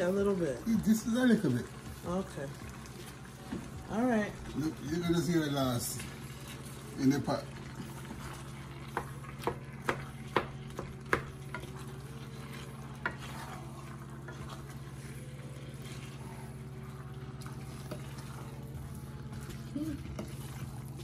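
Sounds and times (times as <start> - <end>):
wooden spoon stirring in a pot: 0.0 - 21.0
steady low hum: 6.0 - 21.0.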